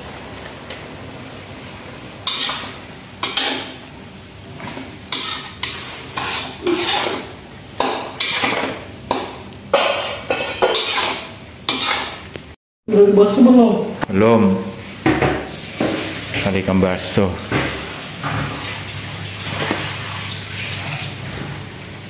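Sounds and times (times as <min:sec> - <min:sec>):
frying sizzle: 0:00.0 - 0:22.0
metal spatula scraping a wok: 0:02.2 - 0:03.8, 0:04.6 - 0:08.8, 0:09.8 - 0:12.3.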